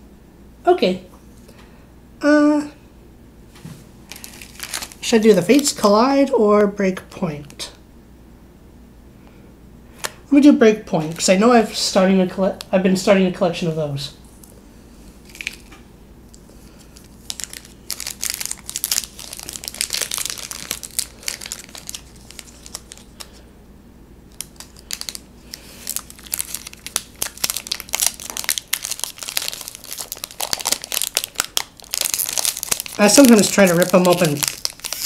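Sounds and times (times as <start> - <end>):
foil pack crinkling and tearing: 4.0 - 5.9, 15.2 - 15.8, 16.6 - 23.4, 24.3 - 35.0.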